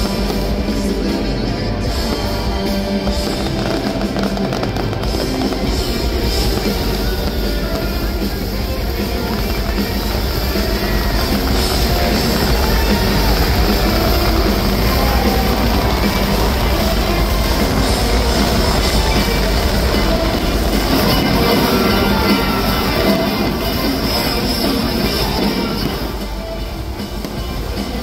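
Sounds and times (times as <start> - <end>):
loud rock music: 0.0 - 28.0.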